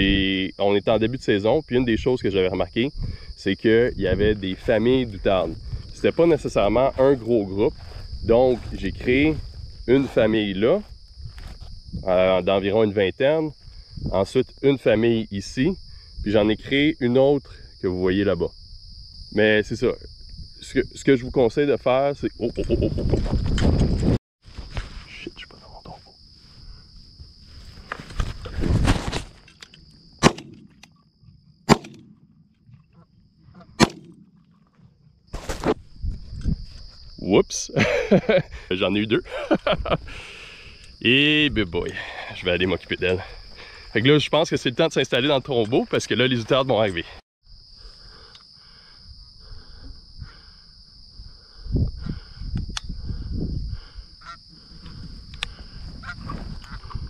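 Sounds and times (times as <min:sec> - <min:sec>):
rustling and handling noise: 0:26.4 - 0:30.0
shotgun shots: 0:30.2 - 0:30.8, 0:31.7 - 0:32.2, 0:33.8 - 0:34.4.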